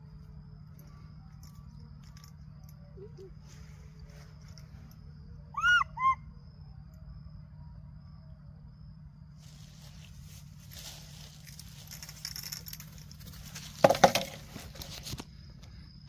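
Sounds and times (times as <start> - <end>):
steady low hum: 0.0 - 16.0
baby monkey calling: 5.5 - 6.2
rustling: 9.4 - 15.4.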